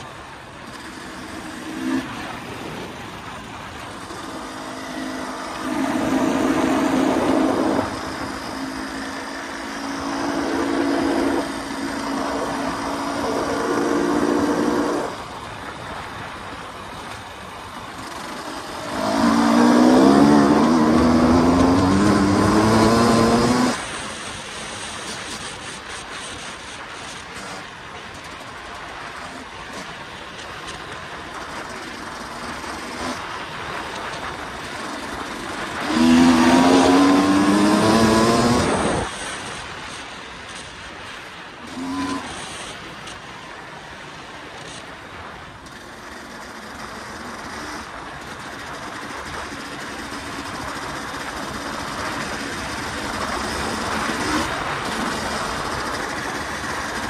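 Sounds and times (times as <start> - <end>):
dirt bike engine revving: 3.9 - 15.2, 18.0 - 23.9, 34.8 - 39.3, 41.6 - 42.7.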